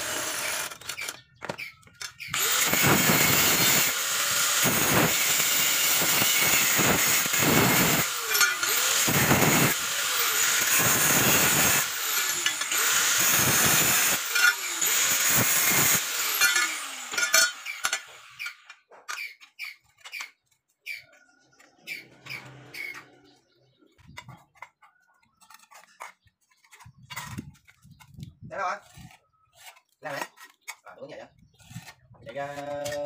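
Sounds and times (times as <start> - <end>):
angle grinder cutting steel: 0.0 - 21.1, 21.9 - 23.3.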